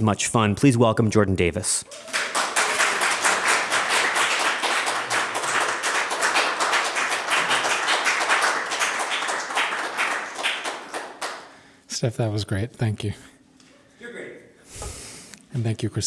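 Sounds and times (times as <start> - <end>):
audience applause: 1.9 - 11.6.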